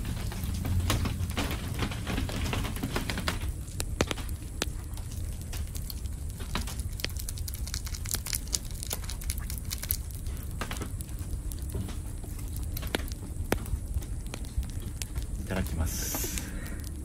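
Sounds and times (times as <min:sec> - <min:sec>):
charcoal grill crackling and popping: 0:00.0 - 0:17.0
low steady rumble: 0:00.0 - 0:17.0
noodles simmering in a tin: 0:00.0 - 0:17.0.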